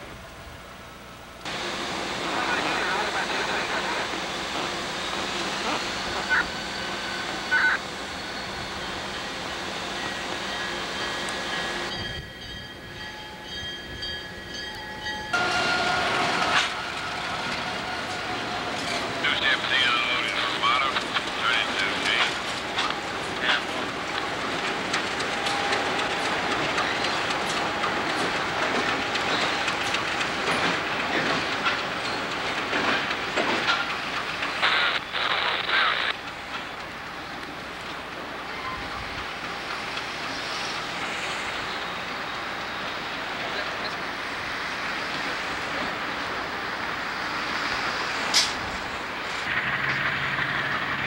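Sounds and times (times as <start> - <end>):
diesel locomotive engines running: 0.0 - 51.0
wheels clicking over rail joints: 21.0 - 34.6.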